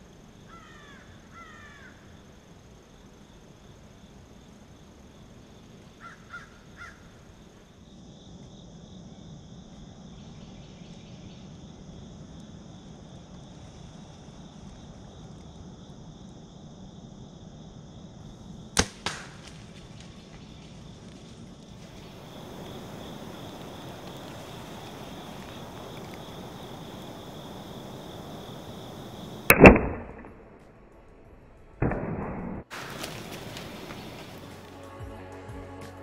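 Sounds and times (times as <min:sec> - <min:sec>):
crow cawing: 0:00.5 - 0:02.0, 0:06.0 - 0:07.1
arrow striking animal: 0:18.8 - 0:19.6, 0:29.5 - 0:30.5, 0:31.8 - 0:33.1
bow string releasing crack: 0:18.8 - 0:20.2.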